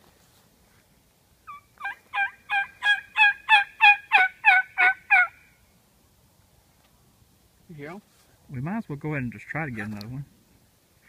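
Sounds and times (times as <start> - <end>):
turkey call by mouth: 1.5 - 5.5.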